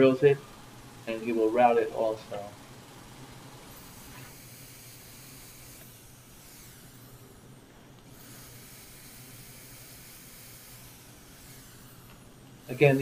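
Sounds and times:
faint steady hiss: 0:00.0 - 0:13.0
low constant hum: 0:00.0 - 0:13.0.

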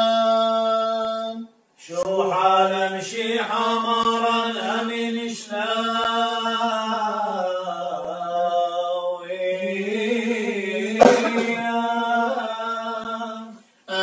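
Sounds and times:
brief sharp noise: 0:11.0 - 0:11.8.

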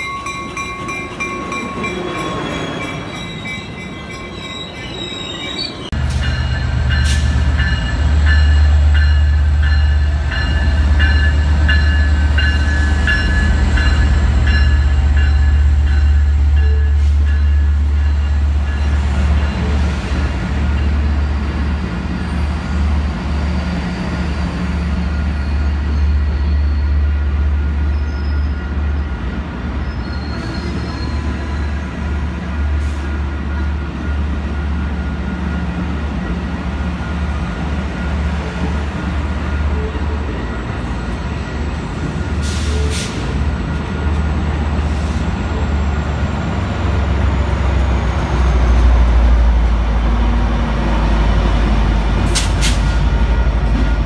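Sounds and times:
diesel locomotive passing: 0:00.0 - 0:54.0
train wheels rumbling on rail: 0:00.0 - 0:54.0.

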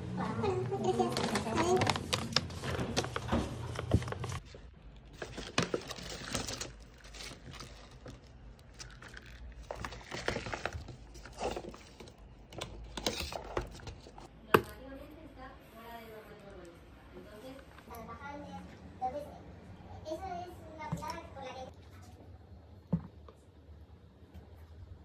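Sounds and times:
paper bag rustling: 0:00.9 - 0:12.2.

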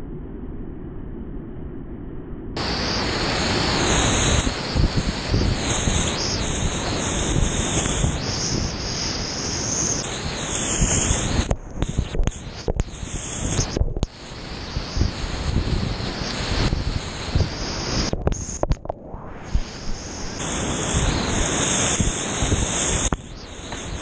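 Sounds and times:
whitewater rushing: 0:02.6 - 0:18.8, 0:19.5 - 0:24.0.

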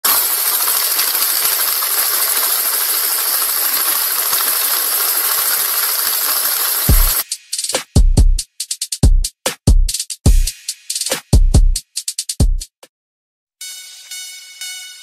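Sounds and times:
steady hiss with fine crackle: 0:00.1 - 0:07.2.

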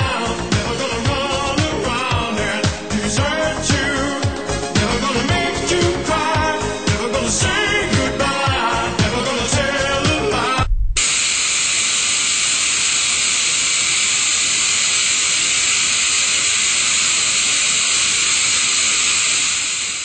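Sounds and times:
music: 0:00.0 - 0:10.8
tv static hiss: 0:11.0 - 0:20.0.

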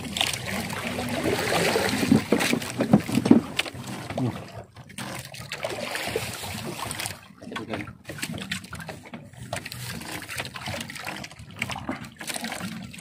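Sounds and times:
clicks and knocks against hull: 0:01.9 - 0:05.6, 0:06.3 - 0:13.0.

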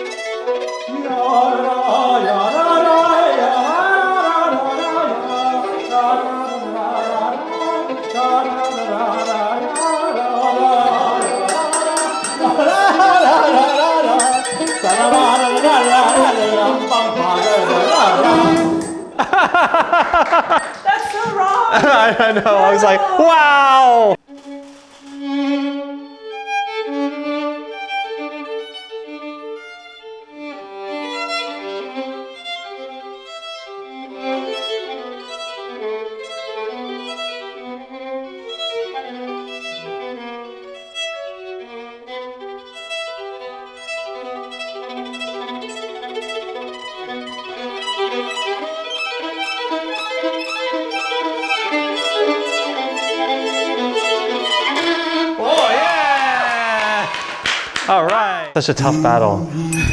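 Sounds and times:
solo violin fast running notes: 0:25.2 - 0:55.4.

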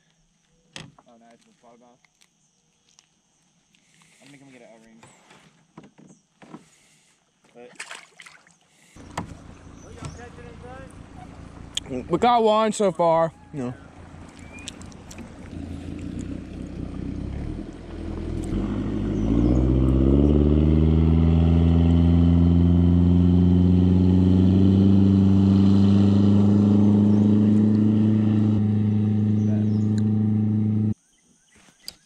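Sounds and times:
outboard engine speeding up: 0:09.0 - 0:31.0.

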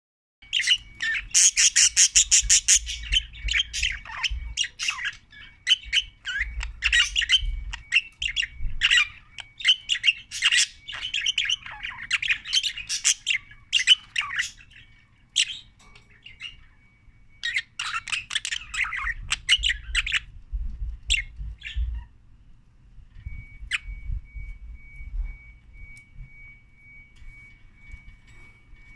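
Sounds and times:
budgerigar chirping and squawking: 0:00.5 - 0:16.6, 0:17.4 - 0:20.3.

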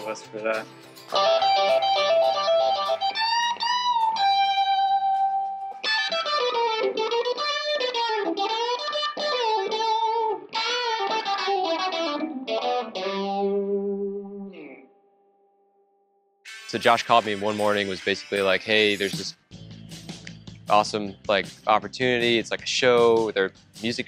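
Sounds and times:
electric guitar lead line: 0:00.0 - 0:15.0.

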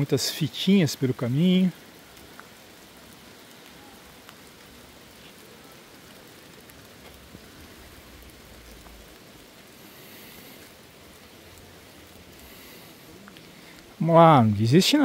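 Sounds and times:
steady rain falling: 0:00.0 - 0:15.0.

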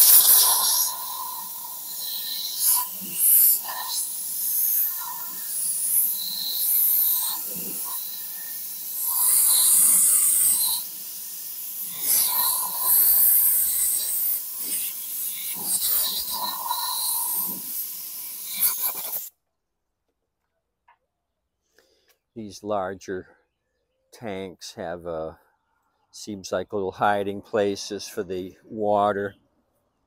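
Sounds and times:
air blow gun hissing: 0:00.0 - 0:19.3.

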